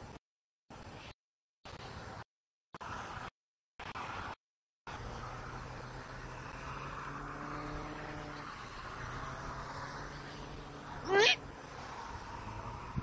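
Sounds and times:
distant engine drone: 0:04.9 - 0:13.0.

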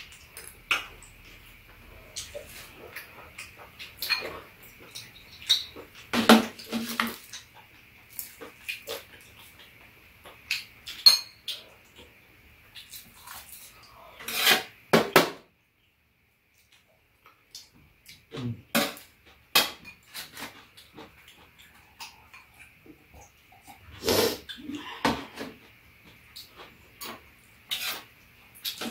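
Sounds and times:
utensils clinking against bowls: 0:03.4 - 0:07.2, 0:10.5 - 0:11.6.

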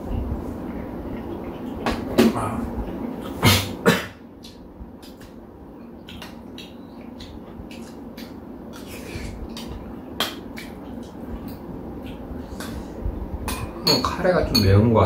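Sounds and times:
steady low hum: 0:00.0 - 0:15.0
mouth sounds of eating: 0:04.4 - 0:13.0.

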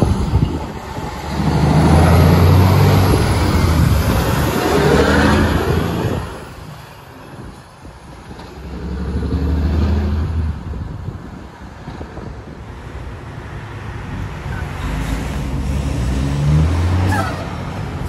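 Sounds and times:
truck diesel engine accelerating: 0:00.0 - 0:06.9, 0:08.2 - 0:10.8, 0:14.2 - 0:18.0.

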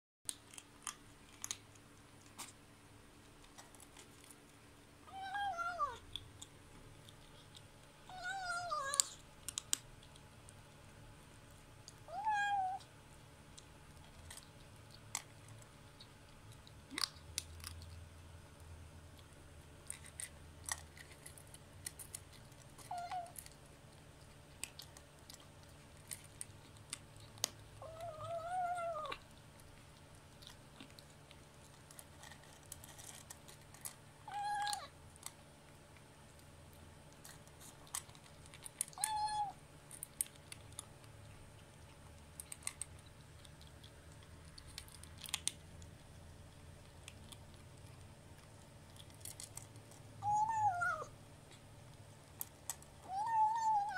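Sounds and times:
kitten crunching dry kibble: 0:00.3 - 0:53.9
kitten nom nom calls: 0:24.7 - 0:31.2, 0:34.2 - 0:35.0, 0:49.3 - 0:51.7, 0:52.4 - 0:53.9.

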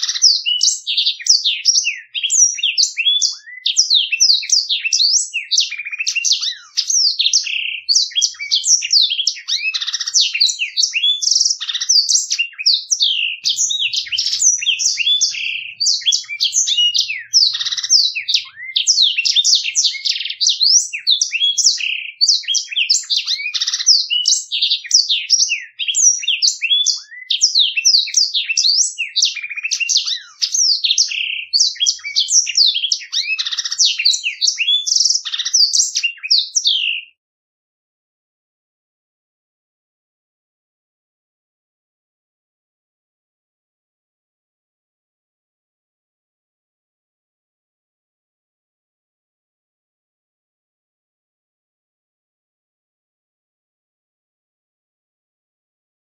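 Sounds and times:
canary singing trills: 0:00.0 - 0:37.2.

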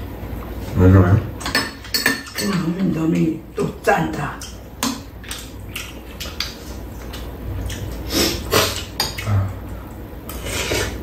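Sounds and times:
utensils clinking on bowls: 0:01.4 - 0:03.7.

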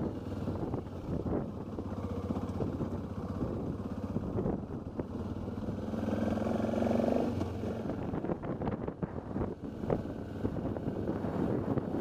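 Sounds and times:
motorcycle engine running: 0:00.0 - 0:12.0
motorcycle rattling on gravel: 0:00.1 - 0:05.8.

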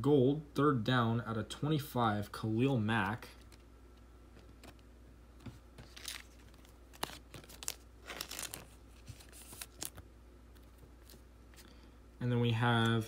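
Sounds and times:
trading cards rustling and clicking: 0:03.3 - 0:03.7, 0:04.4 - 0:11.7.

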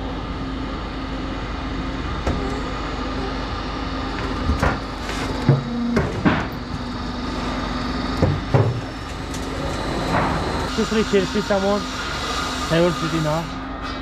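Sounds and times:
roll-forming machine humming: 0:00.0 - 0:13.7.

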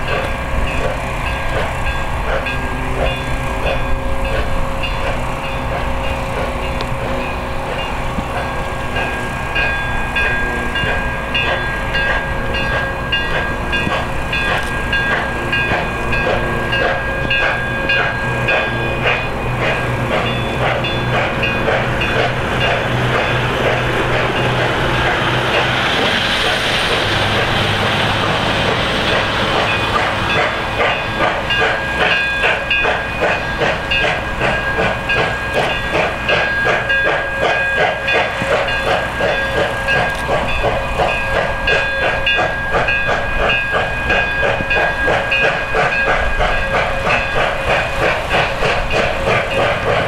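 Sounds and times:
steam locomotive exhaust chuffs: 0:00.0 - 0:50.0.

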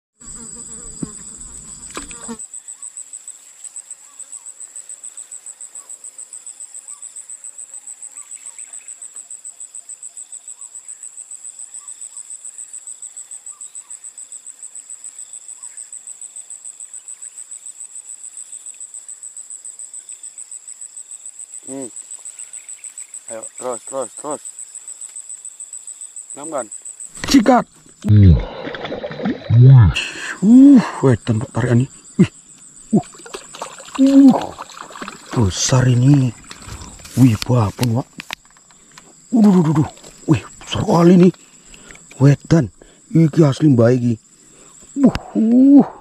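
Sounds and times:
insect pulsed trill: 0:00.2 - 0:46.0.

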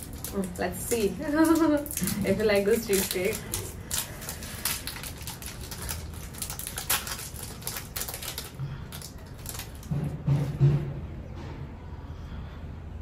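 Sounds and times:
plastic wrapper crinkling: 0:00.0 - 0:10.0.

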